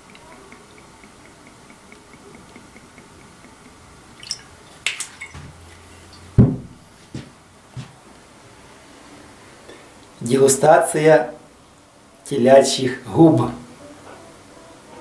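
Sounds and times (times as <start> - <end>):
liquid trickling into glass: 4.1 - 6.3
heavy knock: 6.4 - 7.9.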